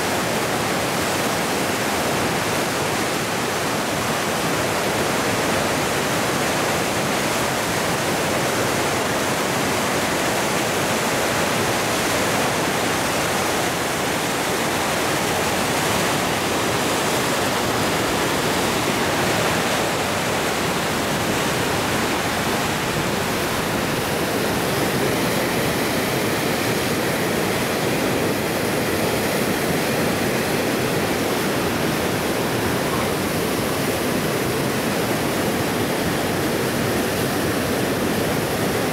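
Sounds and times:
whitewater rushing: 0:00.0 - 0:38.9.

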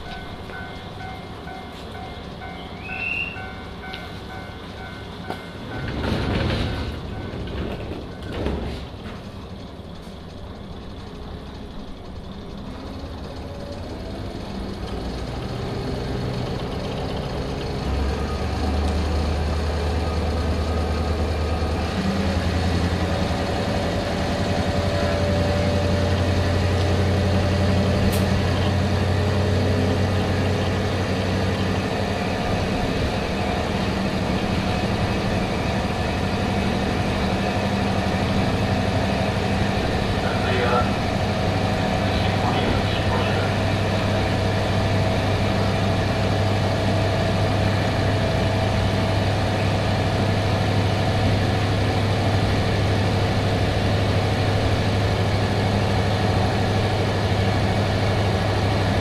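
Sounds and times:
diesel railcar running: 0:00.0 - 0:59.0.

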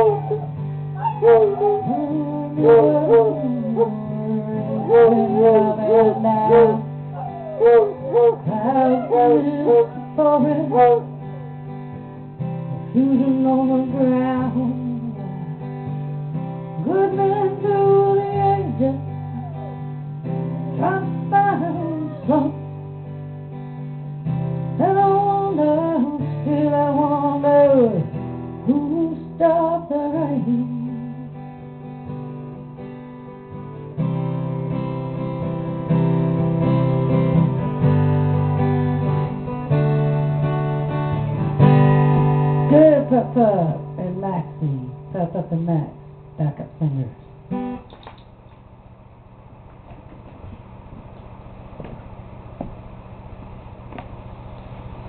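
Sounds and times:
hounds howling: 0:00.0 - 0:11.5, 0:17.9 - 0:22.6
acoustic guitar strumming: 0:00.0 - 0:48.0.

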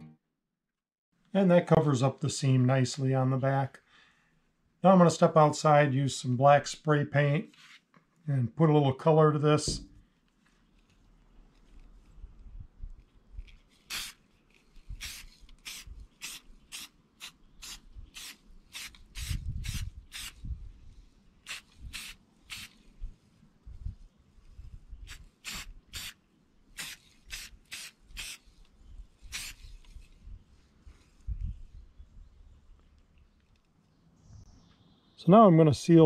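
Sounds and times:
spray paint can bursts: 0:13.8 - 0:14.2, 0:14.9 - 0:20.4, 0:21.4 - 0:22.9, 0:25.0 - 0:28.6, 0:29.2 - 0:29.8.

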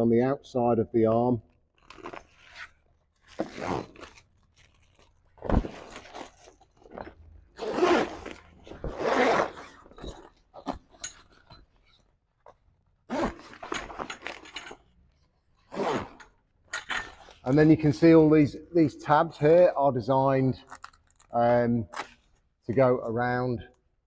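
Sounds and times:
canvas rustling and scraping: 0:01.8 - 0:16.2.

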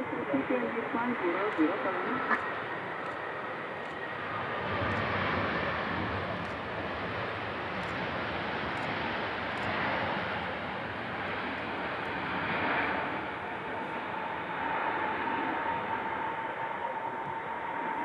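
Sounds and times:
jet engines rushing with whine: 0:00.0 - 0:18.0.

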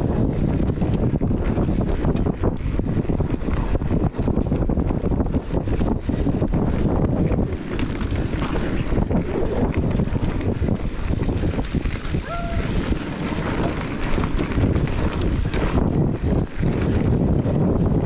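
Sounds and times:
bike tyres rumbling on dirt: 0:00.0 - 0:18.0
wind buffeting microphone: 0:00.0 - 0:18.0.

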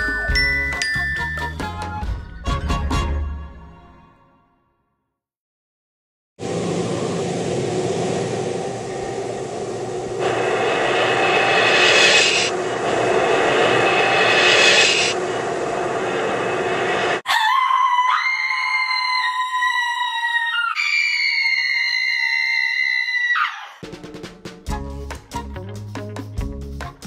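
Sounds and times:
loud rushing roar: 0:06.4 - 0:17.2.

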